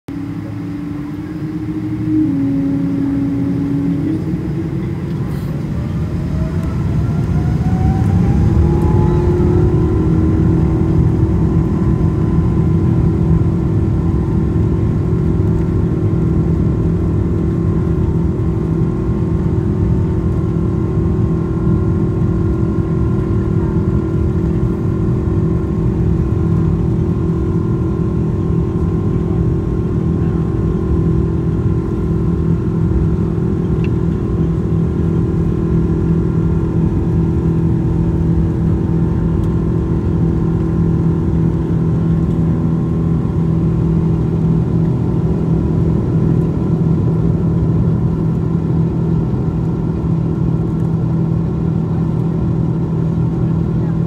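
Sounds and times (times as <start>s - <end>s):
jet engines spooling up: 0.1s - 12.6s.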